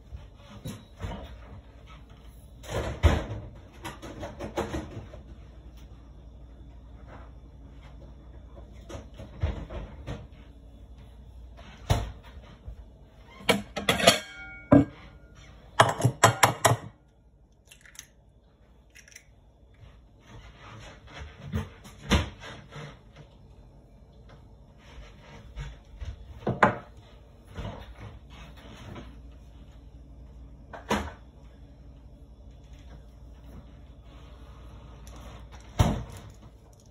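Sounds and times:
kitchen items knocking and clinking: 13.4 - 15.1, 15.8 - 17.0
kitchen items clattering: 13.4 - 17.0.

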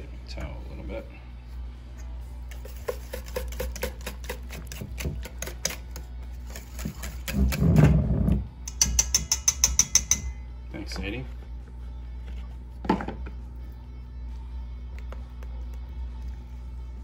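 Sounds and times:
whisk clinking in metal bowl: 8.7 - 10.4.

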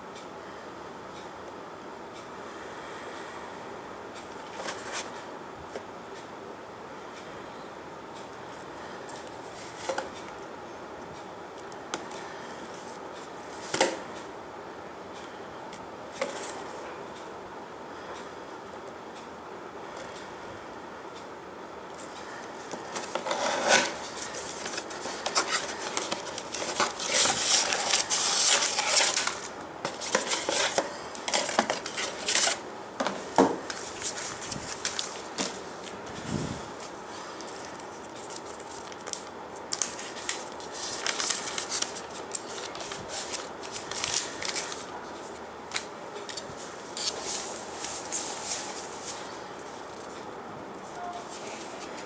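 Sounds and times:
cardboard rustling and crinkling: 22.7 - 45.8.

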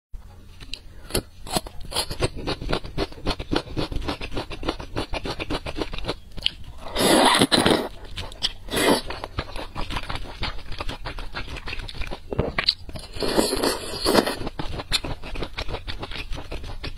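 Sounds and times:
wet chewing and smacking: 0.6 - 16.9
slurping noodles: 6.8 - 16.9.

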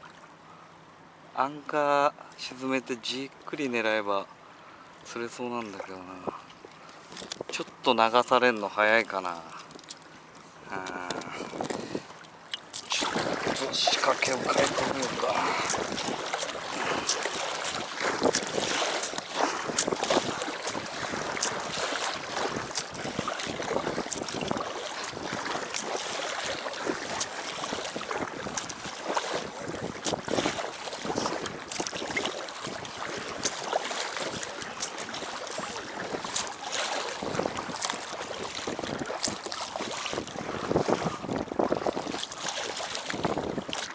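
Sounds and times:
water lapping against a raft: 0.0 - 43.9
wind buffeting microphone: 10.8 - 12.1, 12.9 - 43.9.

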